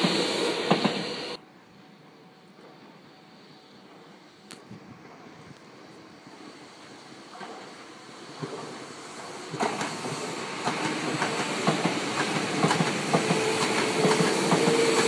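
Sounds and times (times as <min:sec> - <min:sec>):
train wheels clicking over rail joints: 0:00.0 - 0:01.4, 0:07.2 - 0:15.0.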